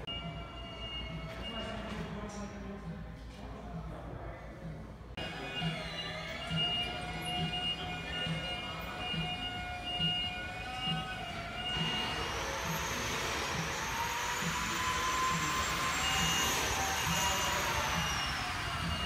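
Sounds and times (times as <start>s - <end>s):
loud rushing whining noise: 5.2s - 19.0s.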